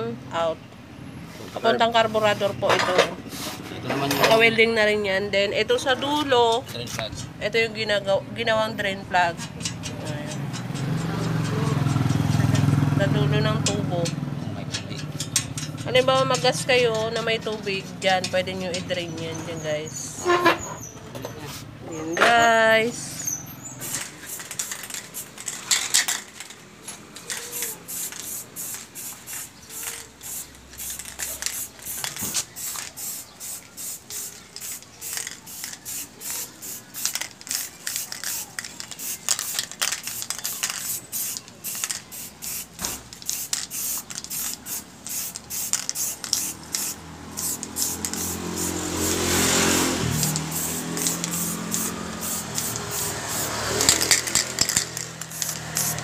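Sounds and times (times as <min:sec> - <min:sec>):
spray-paint can hissing: 0:23.2 - 0:26.5, 0:27.2 - 0:56.0.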